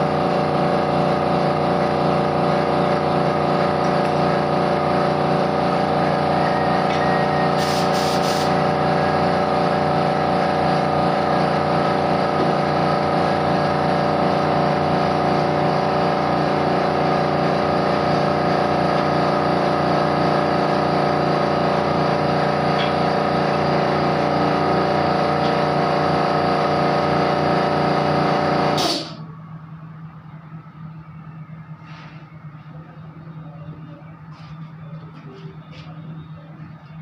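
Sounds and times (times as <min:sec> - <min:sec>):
small air compressor running: 0:00.0 - 0:29.3
short hiss of air: 0:07.6 - 0:08.6, 0:28.8 - 0:29.2.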